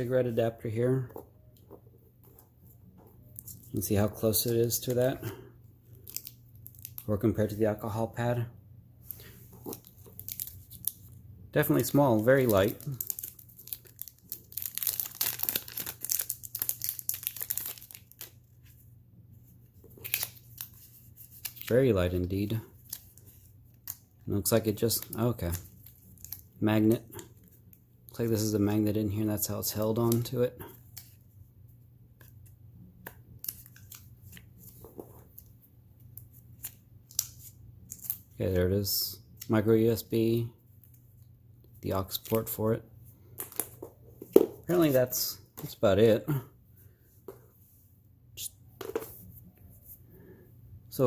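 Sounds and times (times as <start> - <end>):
plastic wrap crinkling: 11.8 - 18.3.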